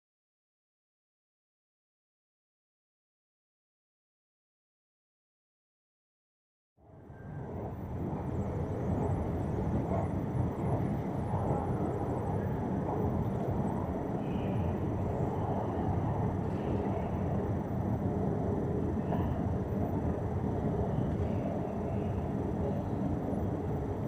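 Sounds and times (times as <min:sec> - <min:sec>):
station hall ambience: 0:06.8 - 0:24.0.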